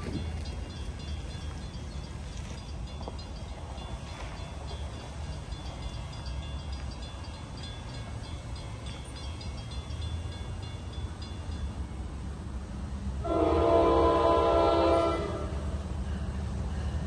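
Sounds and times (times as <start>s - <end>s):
train low rumble: 0.0s - 17.0s
train air horn chord: 13.2s - 15.6s.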